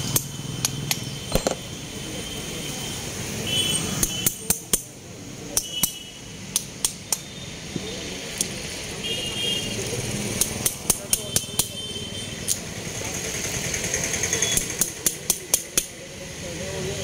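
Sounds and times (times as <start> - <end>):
hammer tapping metal chisel: 0.1 - 1.6, 4.0 - 4.9, 10.4 - 11.8, 14.5 - 15.9.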